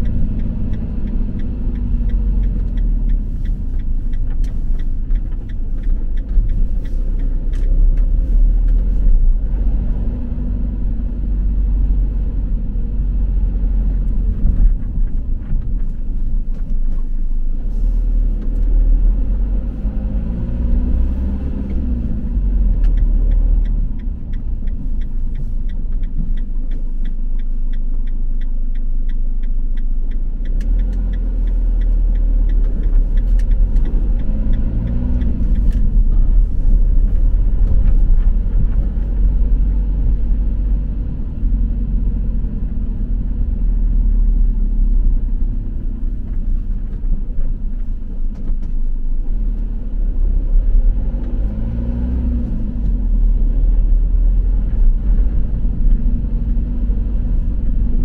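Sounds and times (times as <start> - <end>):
regular ticking: 0.0 - 9.3, 19.2 - 49.8
vehicle engine and road rumble: 0.0 - 58.0.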